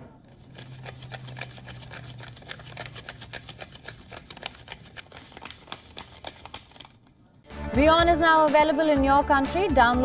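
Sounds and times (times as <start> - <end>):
banknotes flicked by hand: 0.3 - 7.1.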